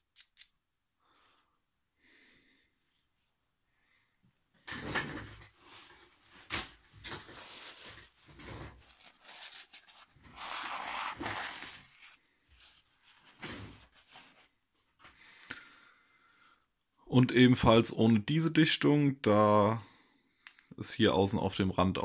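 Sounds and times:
paper towel rustling: 5.5 - 15.0.

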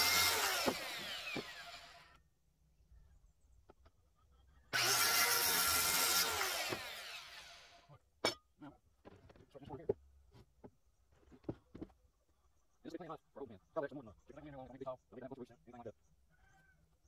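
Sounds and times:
electric power tool on wood: 0.0 - 2.2, 4.7 - 7.8.

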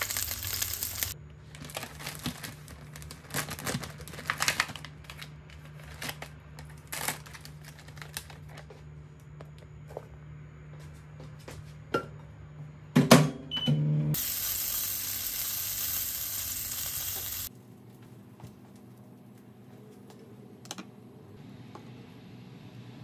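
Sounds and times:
sausage sizzling in oil: 0.0 - 1.2, 14.2 - 17.5.

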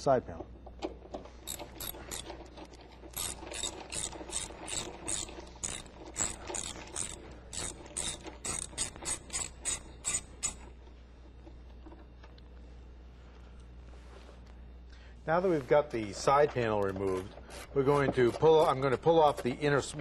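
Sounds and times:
socket ratchet clicking: 1.4 - 2.4, 3.1 - 10.7.

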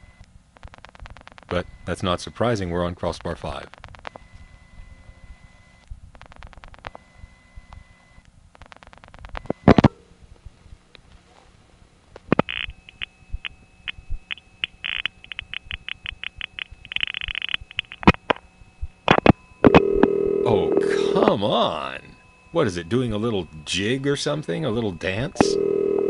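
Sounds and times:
faint steady tone: 1.5 - 5.9, 12.3 - 26.0.

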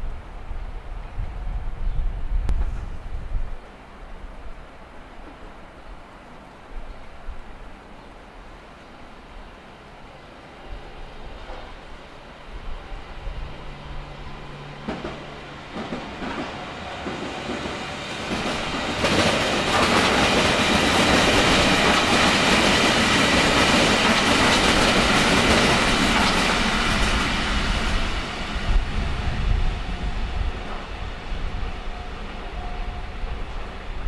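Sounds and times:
electric train passing: 3.6 - 34.0.

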